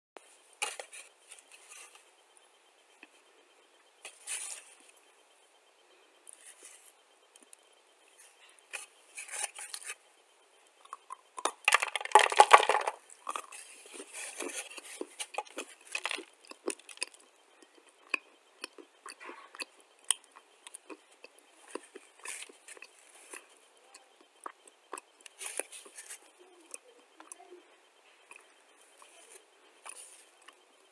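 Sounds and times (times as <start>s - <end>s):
clay crunching when chewed: 10.8s - 27.4s, 28.2s - 30.7s.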